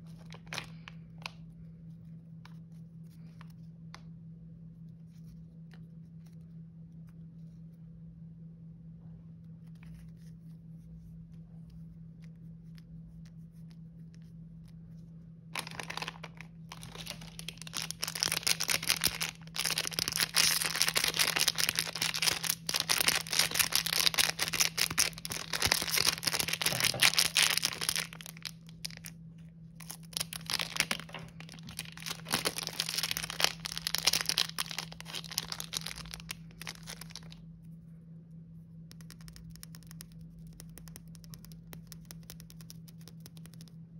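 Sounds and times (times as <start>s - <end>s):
plastic wrapper crackling: 0.0s - 1.4s, 15.6s - 37.4s.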